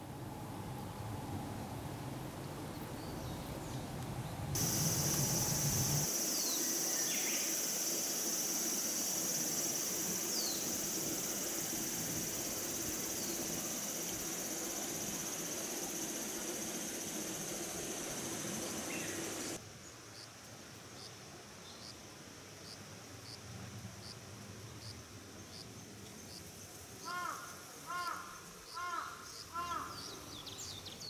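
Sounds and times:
high-pitched insect drone: 4.6s - 19.6s.

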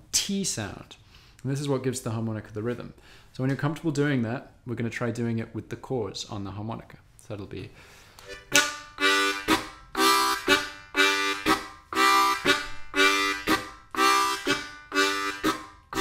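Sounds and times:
harmonica chugging train rhythm: 8.2s - 16.0s.

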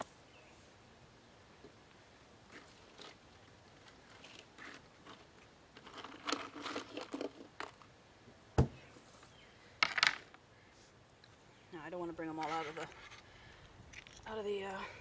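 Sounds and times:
clams rustling: 2.5s - 7.9s
dull thump: 8.6s - 8.8s.

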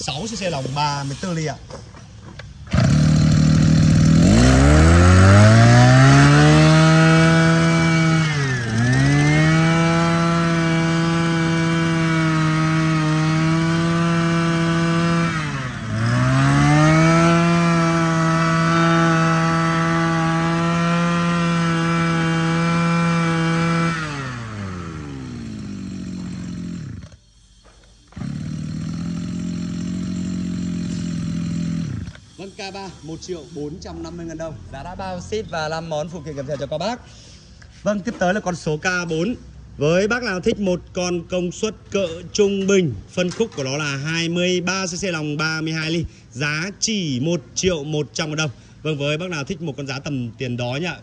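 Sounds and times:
brush cutter engine revving: 2.6s - 27.2s, 28.0s - 32.6s.

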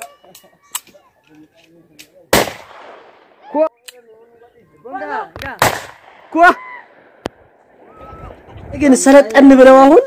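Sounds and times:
rifle shots with echo: 2.3s - 3.4s, 5.4s - 7.5s
people shouting: 6.3s - 7.1s.

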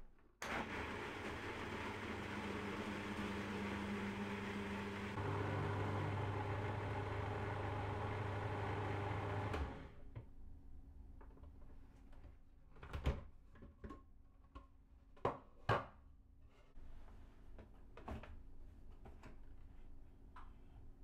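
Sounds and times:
food processor motor running: 0.4s - 10.0s.

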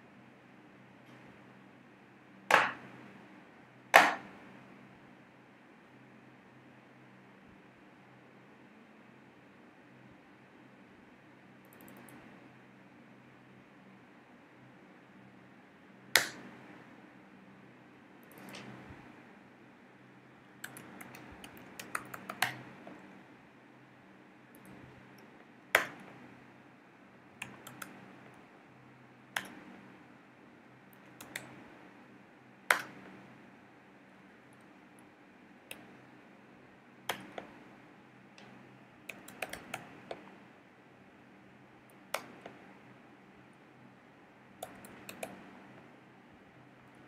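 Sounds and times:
faint low hum: 0.0s - 47.0s
typing on computer keyboard: 11.7s - 12.2s, 18.2s - 18.8s, 20.6s - 22.7s, 27.4s - 28.1s, 31.0s - 31.6s, 39.1s - 40.2s, 44.6s - 45.5s.

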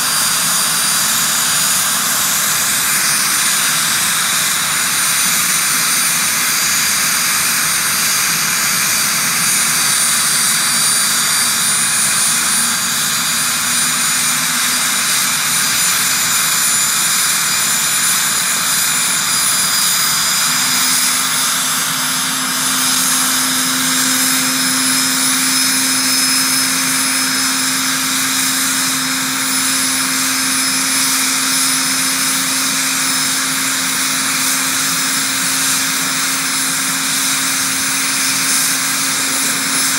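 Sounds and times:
helicopter turbine whine: 0.0s - 39.9s
low hum: 19.4s - 31.5s.

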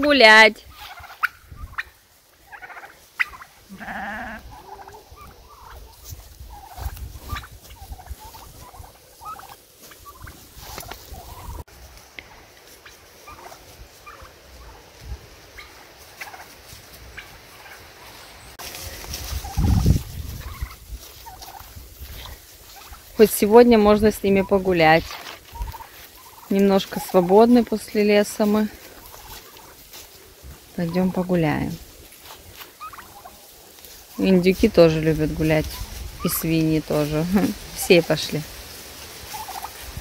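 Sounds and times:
turkeys calling: 0.0s - 40.0s.

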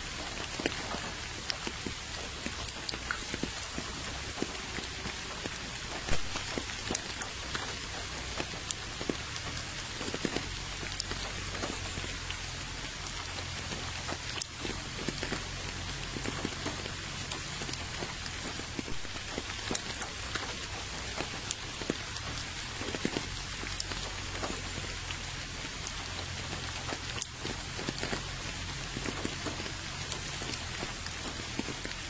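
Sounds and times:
rain falling: 0.0s - 32.0s.

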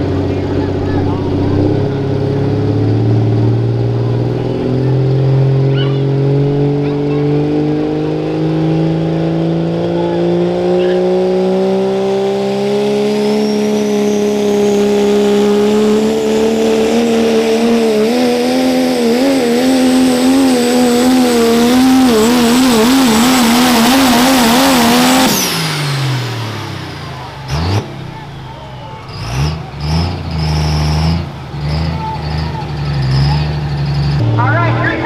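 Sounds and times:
diesel truck engine at full throttle: 0.0s - 35.0s
high turbo whistle: 13.2s - 16.5s.

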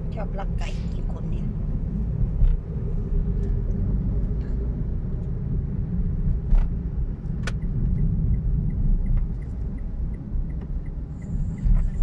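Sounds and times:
car road and engine rumble: 0.0s - 12.0s
light even ticking: 7.4s - 12.0s.

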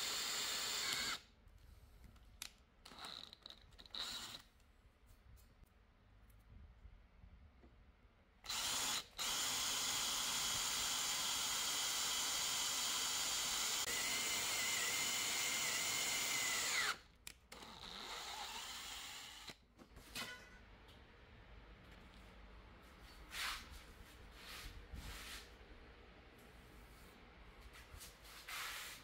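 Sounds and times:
power drill driving screw into steel: 0.0s - 1.2s, 2.9s - 4.4s, 8.5s - 17.0s.

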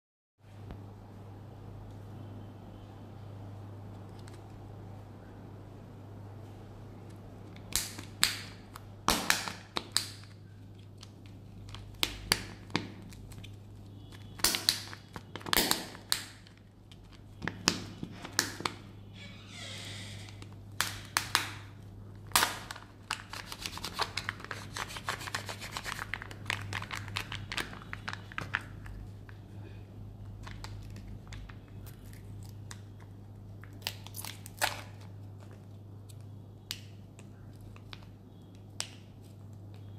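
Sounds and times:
plastic wrapper crinkling and tearing: 20.3s - 29.5s, 30.2s - 36.3s.

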